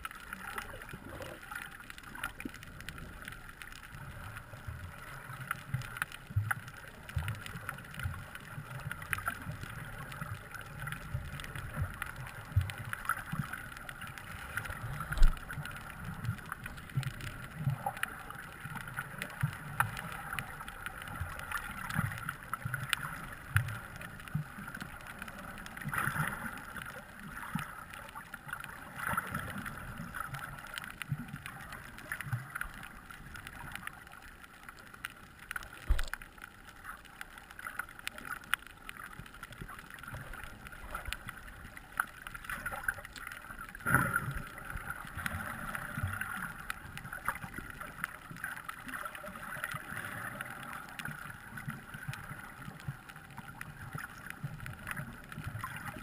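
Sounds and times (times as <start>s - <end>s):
muffled underwater water moving: 0.0s - 56.0s.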